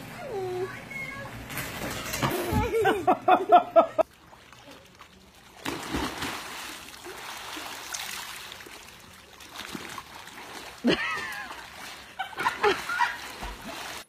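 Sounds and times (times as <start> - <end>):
water splashing in pool: 4.0 - 14.0.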